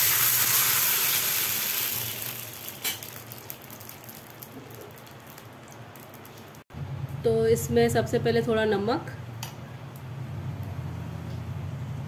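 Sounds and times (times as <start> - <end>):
water hissing in hot pan: 0.0 - 6.4.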